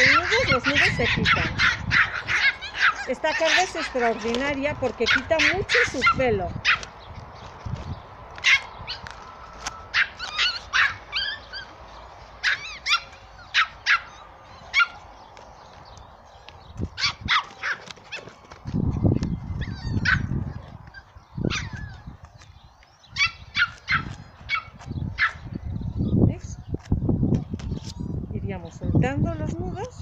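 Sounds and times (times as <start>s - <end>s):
puppy yipping and whimpering: 0.0s - 4.4s, 9.9s - 11.8s, 12.4s - 15.0s, 19.4s - 22.2s, 23.2s - 25.4s.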